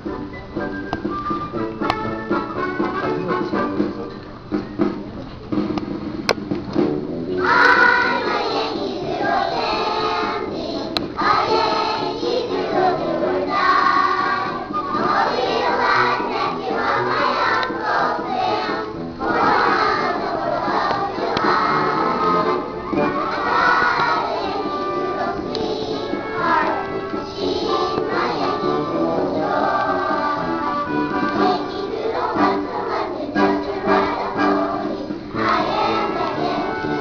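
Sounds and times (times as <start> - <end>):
musical accompaniment: 0.0 - 37.0
children singing in a choir: 7.4 - 37.0.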